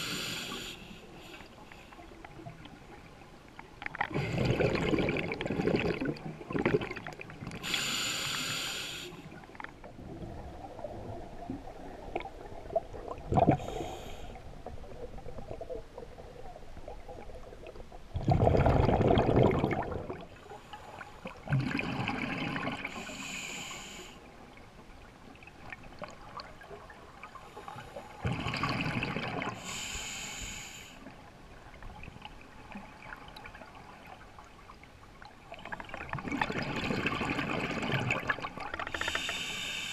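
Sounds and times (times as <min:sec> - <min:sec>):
regulator hissing inhalation: 0:00.0 - 0:01.5, 0:07.6 - 0:09.2, 0:29.6 - 0:31.0, 0:39.0 - 0:39.9
rush of exhaled bubbles: 0:04.0 - 0:07.3, 0:12.2 - 0:14.0, 0:18.1 - 0:20.3, 0:21.4 - 0:23.0, 0:28.2 - 0:29.6, 0:35.7 - 0:39.1.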